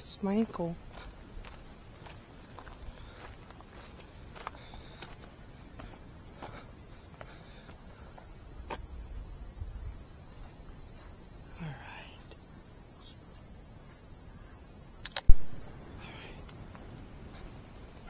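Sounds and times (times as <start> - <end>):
insects droning: 0.0 - 18.0
faint footsteps: 0.4 - 14.2.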